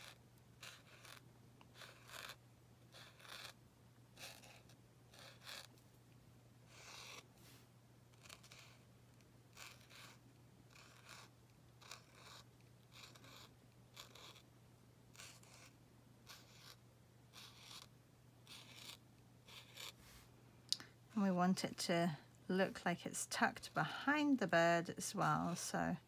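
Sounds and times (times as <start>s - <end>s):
marker scratching on paper: 0.0s - 3.6s, 4.2s - 5.7s, 6.7s - 7.3s, 8.1s - 8.8s, 9.5s - 14.4s, 15.1s - 20.2s
low steady hum: 0.0s - 26.0s.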